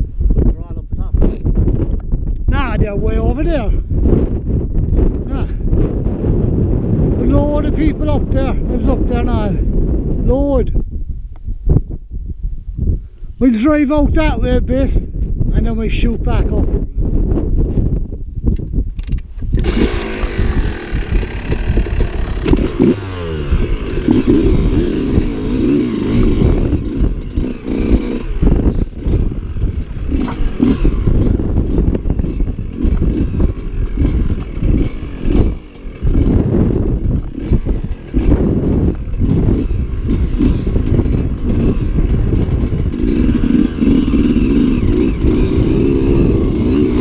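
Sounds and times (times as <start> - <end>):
dirt bike engine revving: 19.5 - 47.0.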